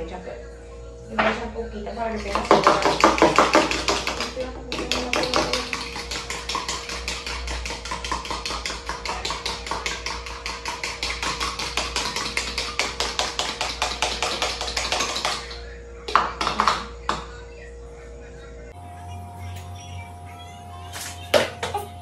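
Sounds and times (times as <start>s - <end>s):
fork beating egg in plastic bowl: 2.1s - 17.2s.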